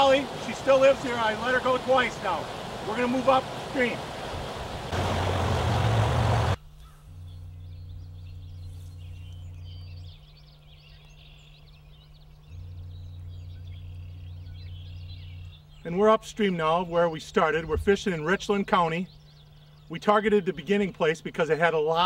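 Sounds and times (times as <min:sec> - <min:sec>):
stream water rushing and splashing: 0:00.0 - 0:06.6
low steady hum: 0:00.0 - 0:22.0
faint bird chirps: 0:06.6 - 0:22.0.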